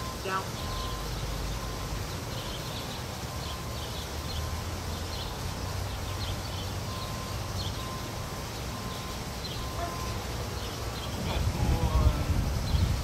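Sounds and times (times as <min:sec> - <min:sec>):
small birds chirping: 0:00.1 - 0:12.0, 0:12.6 - 0:13.0.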